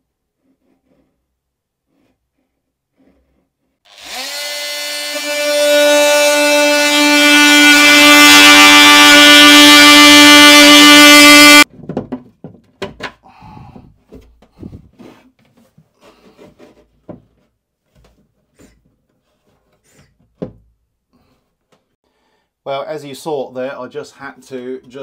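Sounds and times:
multi-tool buzzing whine: 3.9 - 11.6.

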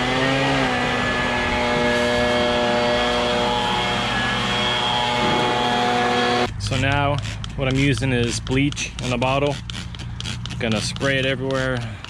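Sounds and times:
leaf blower running: 0.0 - 6.8.

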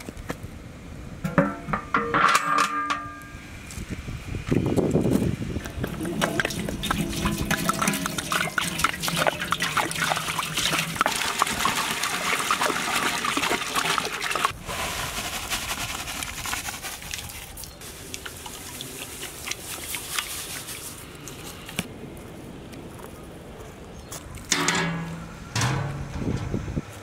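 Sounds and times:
spices splashing into water: 5.8 - 14.5
water pouring into pot: 5.8 - 14.6.

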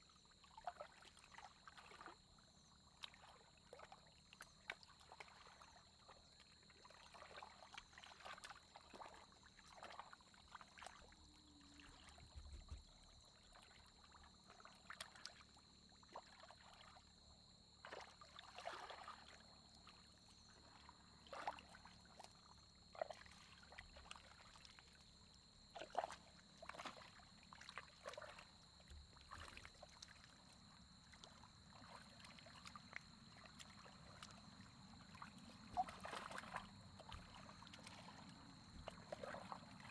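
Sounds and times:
hands splashing in shallow water: 31.2 - 39.9.

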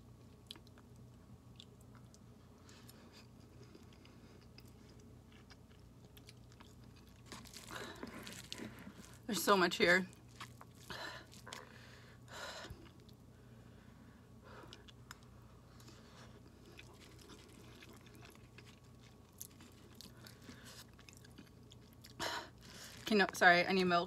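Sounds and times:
chewing noodles: 0.3 - 9.3, 10.1 - 11.8, 14.6 - 23.1.

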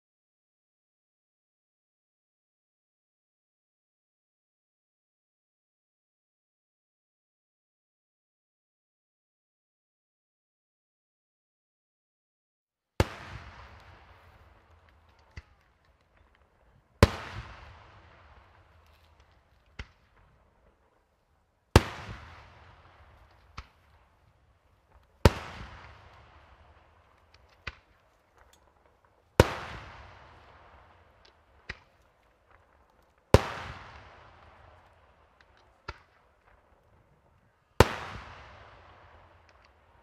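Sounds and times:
fireworks bangs with rolling echo: 13.0 - 40.0.

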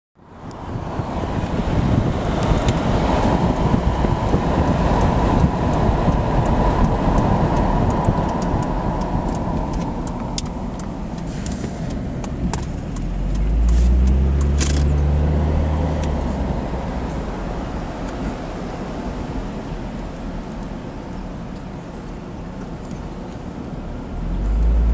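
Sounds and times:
road and wind noise: 0.2 - 24.9
sharp ticks: 3.6 - 14.6.

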